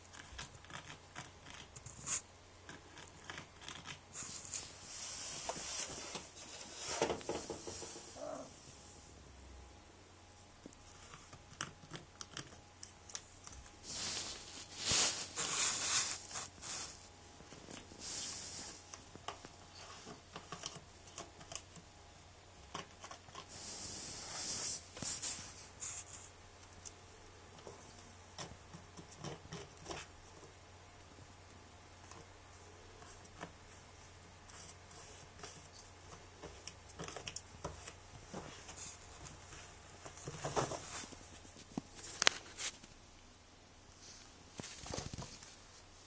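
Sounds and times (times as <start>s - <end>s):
cat tapping and scraping paper: 0.1s - 8.1s
paper rustling: 44.0s - 45.9s.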